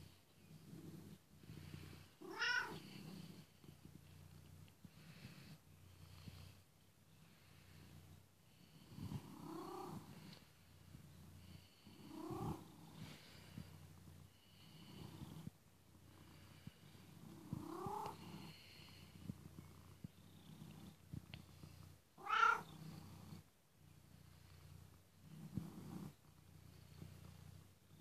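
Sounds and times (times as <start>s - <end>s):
cat purring: 0.0s - 28.0s.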